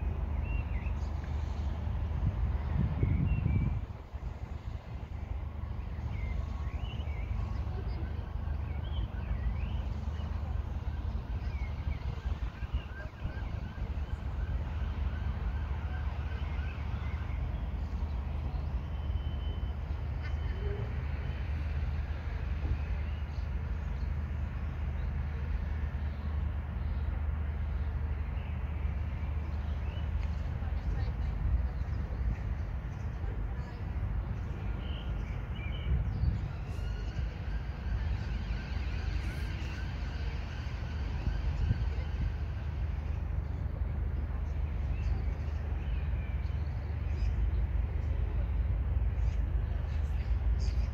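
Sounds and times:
steady low rumble: 0:00.0 - 0:15.8.

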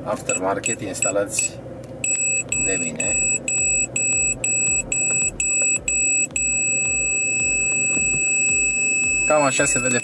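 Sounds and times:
parking sensor buzzer beeping: 0:00.2 - 0:10.0.

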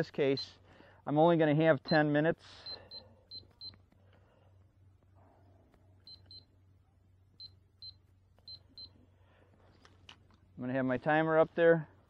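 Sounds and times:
digital timer beeping: 0:00.3 - 0:00.6, 0:01.8 - 0:03.8, 0:06.0 - 0:06.5, 0:07.4 - 0:09.0.

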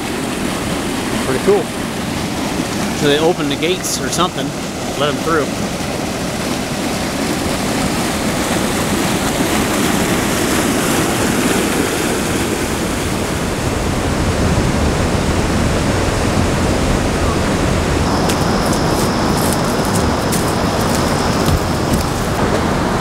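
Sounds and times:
water rushing through weir gates: 0:00.0 - 0:23.0
faint high steady tone: 0:17.2 - 0:21.9.

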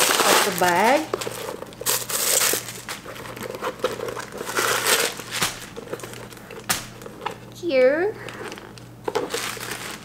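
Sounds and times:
paper and plastic crinkling: 0:00.0 - 0:07.5, 0:08.2 - 0:10.0.

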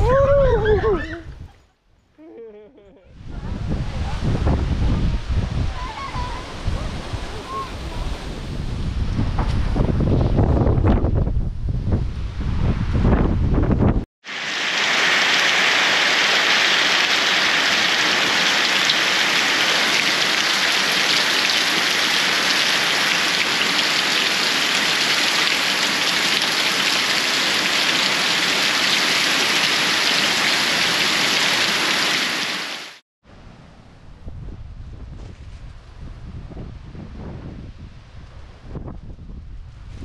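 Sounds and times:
heavy rain pouring: 0:14.2 - 0:33.0.

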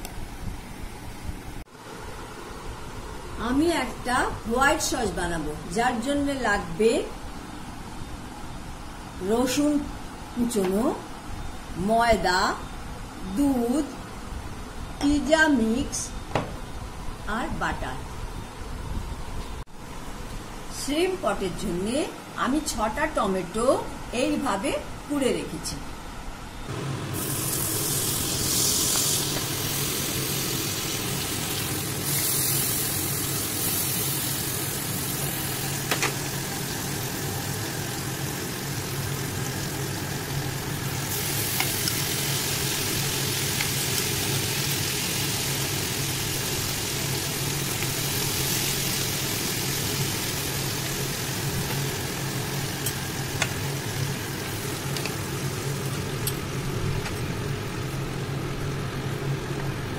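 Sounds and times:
shrimp sizzling in butter: 0:27.1 - 0:56.3.

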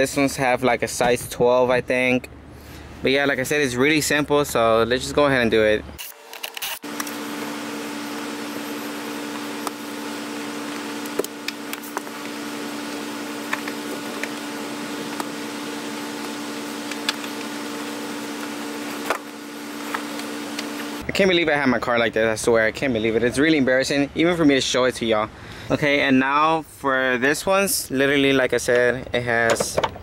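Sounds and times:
steady machine hum: 0:06.1 - 0:21.8.

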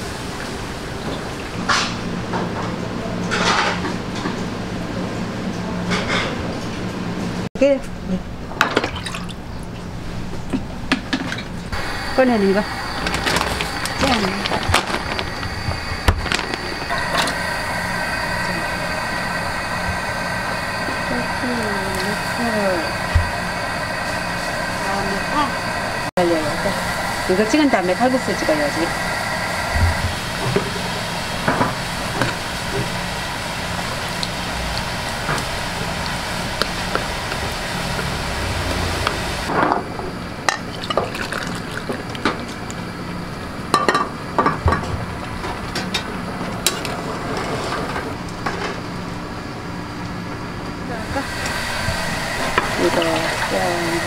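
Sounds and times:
gas burner rushing hum: 0:00.0 - 0:54.0
broth boiling with a hiss: 0:11.7 - 0:54.0
plastic bags rustling: 0:13.0 - 0:16.9.

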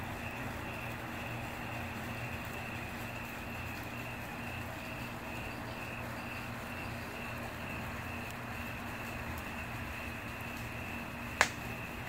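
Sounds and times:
low hum and hiss: 0:00.0 - 0:12.0
wood fire crackling: 0:00.0 - 0:12.0.

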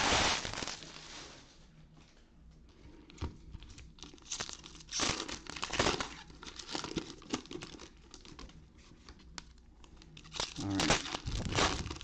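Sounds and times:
wrappers crinkling and tearing: 0:00.0 - 0:01.1, 0:03.7 - 0:12.0.

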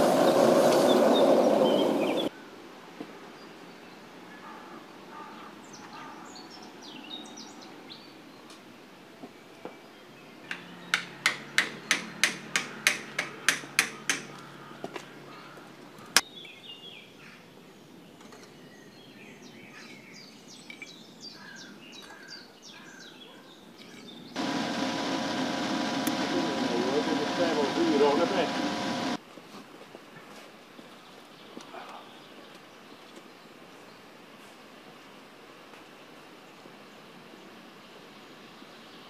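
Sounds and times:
small birds chirping: 0:00.1 - 0:02.3
sharp clicks: 0:24.4 - 0:29.2.

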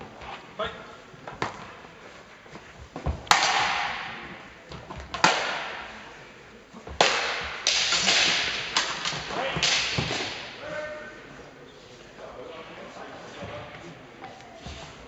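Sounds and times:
swords clashing on metal: 0:07.0 - 0:10.6.

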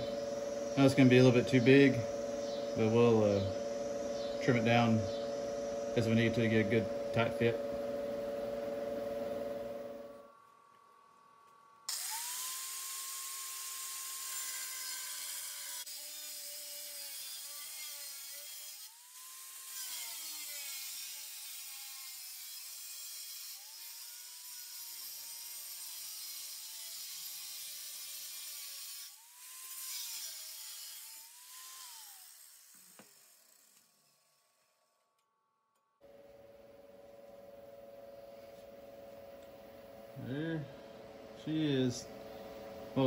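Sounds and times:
power cutting tool cutting steel: 0:11.9 - 0:34.9.

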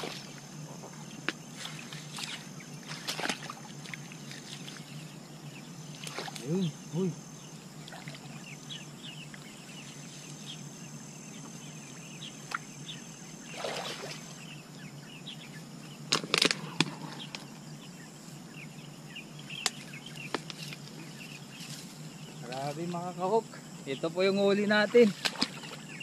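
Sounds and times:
low outdoor hum: 0:00.0 - 0:26.0
small birds chirping: 0:00.0 - 0:26.0
hands working in mud and reeds: 0:01.5 - 0:04.8.

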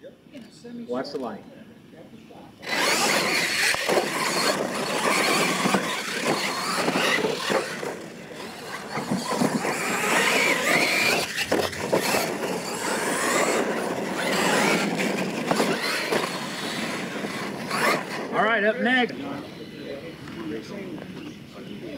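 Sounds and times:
toy car motor whine: 0:02.6 - 0:18.6.

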